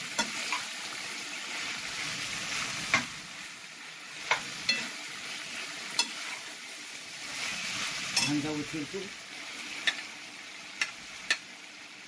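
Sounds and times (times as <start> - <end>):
food sizzling in a frying pan: 0.0 - 12.0
metal spoon clinking against pan: 4.3 - 4.9, 6.0 - 6.3, 8.2 - 8.5.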